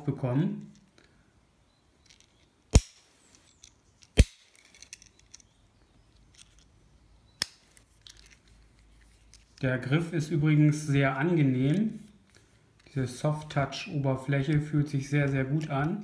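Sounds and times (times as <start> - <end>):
faint handling rustle: 1.8 - 7.0, 7.6 - 10.6, 11.4 - 16.0.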